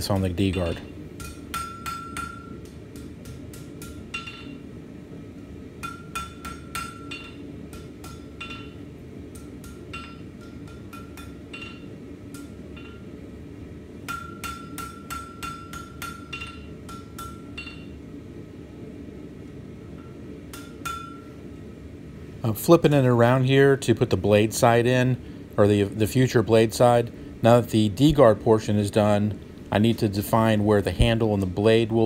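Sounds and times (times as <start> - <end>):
hammer striking steel on anvil: 0.0 - 4.7, 5.8 - 13.1, 14.0 - 18.0, 20.0 - 21.3
low background hum: 0.0 - 32.0.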